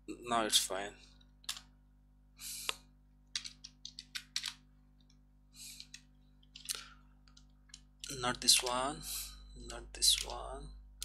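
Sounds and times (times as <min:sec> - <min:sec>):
computer keyboard keystrokes: 0:01.4 - 0:01.7, 0:03.3 - 0:04.6, 0:05.8 - 0:08.8, 0:09.6 - 0:10.5.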